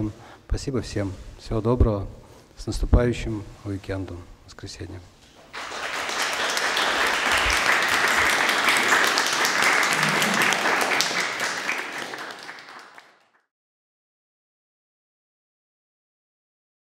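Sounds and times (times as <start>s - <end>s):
audience applause: 5.5s - 13.4s.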